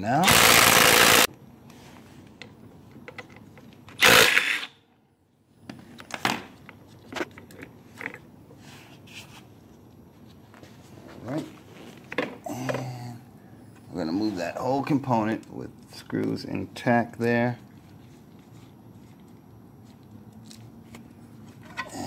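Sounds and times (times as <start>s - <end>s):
impact wrench burst: 0.2s - 1.3s, 4.0s - 4.8s.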